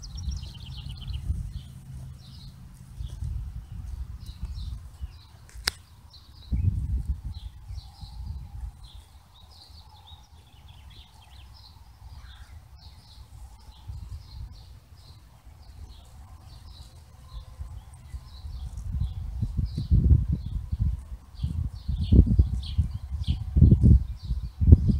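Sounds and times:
birds chirping: 0.0 - 24.9
wind rumble on microphone: 0.0 - 24.9
sharp click: 5.5 - 5.9.

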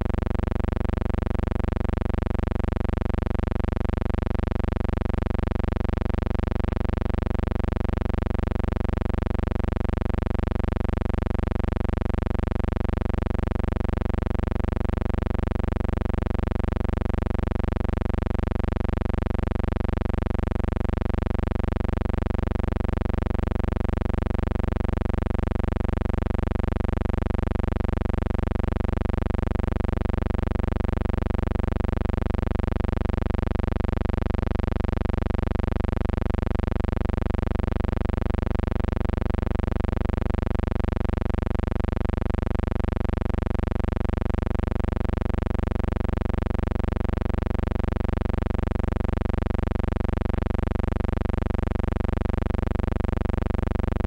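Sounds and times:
low electrical hum: 0.0 - 54.0.

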